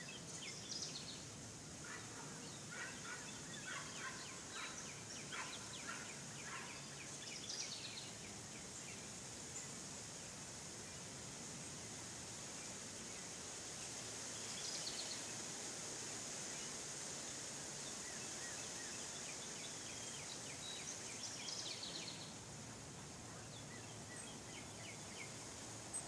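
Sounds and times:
birds chirping: 0.0 - 9.8
steady high hiss: 0.0 - 26.0.

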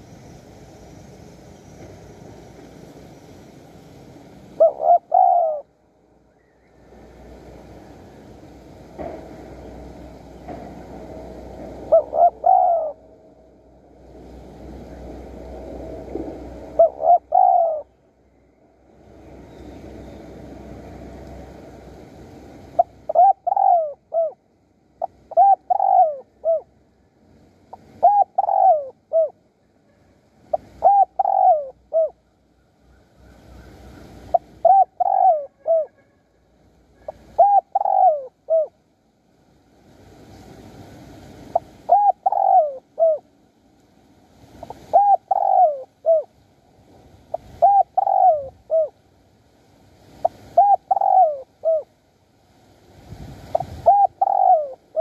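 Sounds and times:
dove cooing: 4.6 - 5.7, 11.7 - 13.1, 16.6 - 18.0, 22.8 - 24.4, 25.0 - 26.7, 27.7 - 29.4, 30.5 - 32.2, 33.5 - 36.0, 37.1 - 38.7, 41.5 - 43.3, 44.7 - 46.3, 47.3 - 49.0, 50.2 - 51.9, 53.5 - 55.0.

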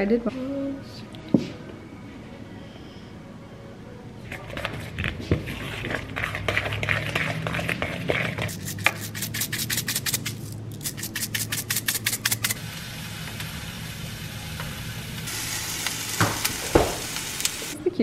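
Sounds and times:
spoon stirring batter in a bowl: 4.3 - 10.3
pancakes sizzling on a griddle: 12.7 - 17.8.

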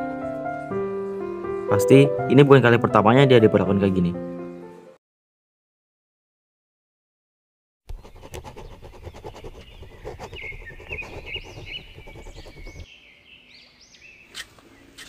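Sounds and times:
birds chirping: 7.9 - 15.0.

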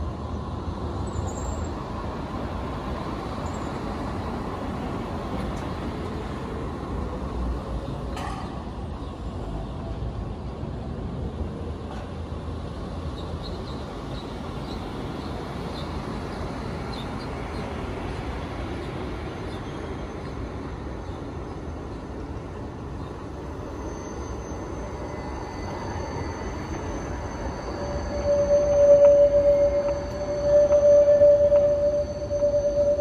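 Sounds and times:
wheels rumbling on rails: 0.0 - 33.0
faint high wheel squeals: 1.0 - 1.9, 3.2 - 5.8, 13.0 - 33.0.

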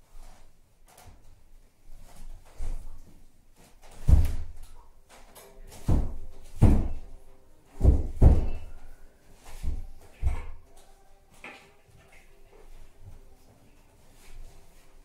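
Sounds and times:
heavy dull thuds: 7.8 - 8.8.

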